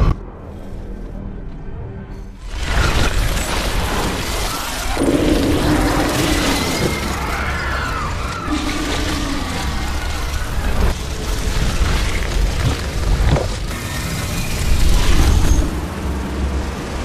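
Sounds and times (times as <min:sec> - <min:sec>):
crashing and shattering rumble: 0:02.4 - 0:17.0.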